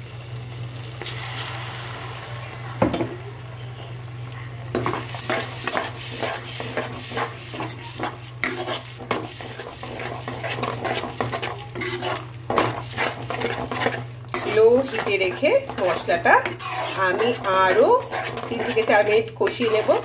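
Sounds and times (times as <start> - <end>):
spices sizzling in a pan: 0.0 - 20.0
metal spoon scraping a pan: 4.8 - 20.0.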